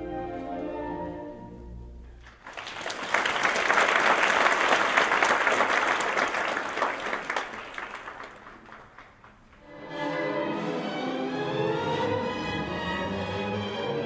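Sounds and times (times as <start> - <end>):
audience applauding: 2.2 - 9.6.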